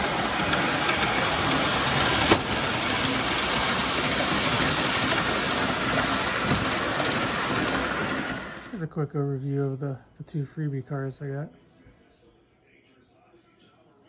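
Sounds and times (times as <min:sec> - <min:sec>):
model train rumbling on track: 0:00.0 - 0:08.8.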